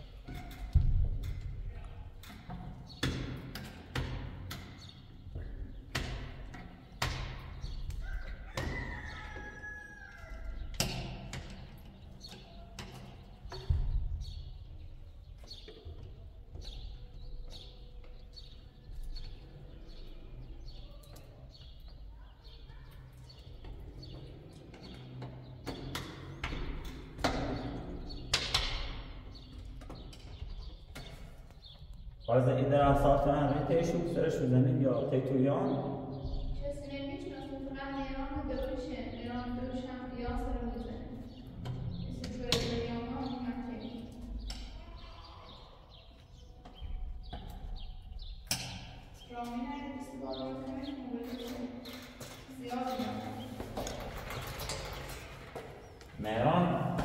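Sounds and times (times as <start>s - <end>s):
knocks and thumps: 0.3s - 4.7s, 12.8s - 14.5s.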